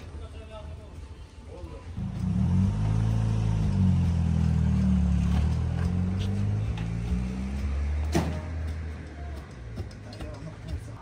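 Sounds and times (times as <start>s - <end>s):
vehicle engine running at low revs: 2.0s - 9.9s.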